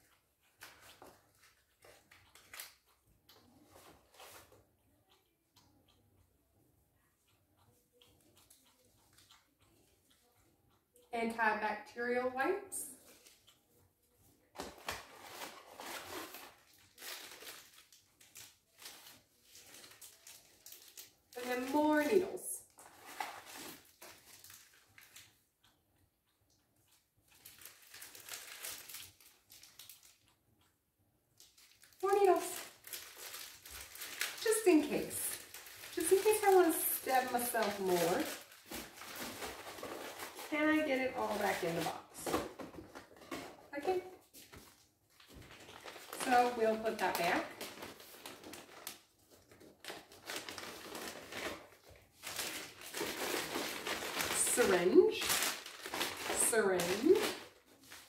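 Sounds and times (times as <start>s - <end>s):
plastic packs crinkling: 14.7s - 22.2s, 22.8s - 25.3s, 27.4s - 30.2s, 31.4s - 58.0s.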